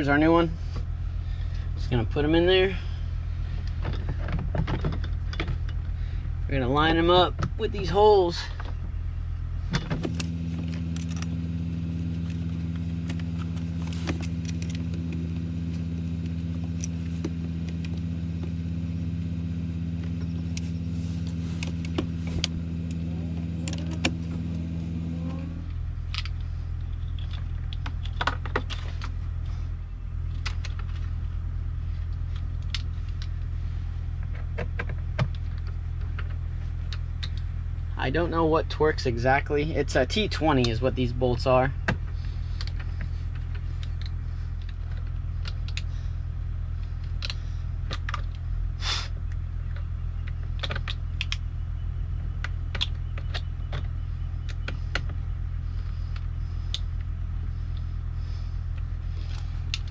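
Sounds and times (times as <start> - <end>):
engine idling hum: 0.0 - 59.9
higher tone: 14.8 - 25.8.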